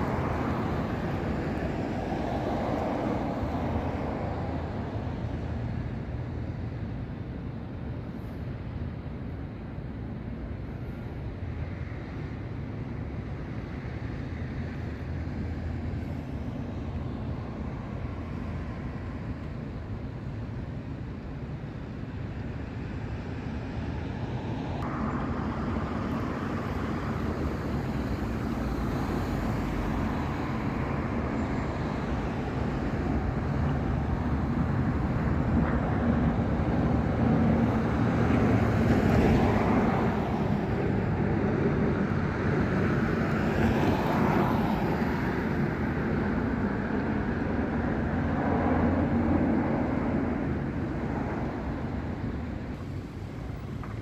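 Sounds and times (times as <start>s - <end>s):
cars passing close by: 0.0s - 7.6s, 11.4s - 54.0s
traffic rumble: 0.0s - 54.0s.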